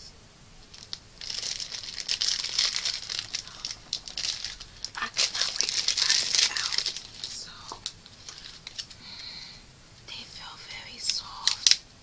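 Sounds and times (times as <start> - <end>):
plastic candy wrapper crinkling: 0.6 - 9.1, 10.9 - 11.8.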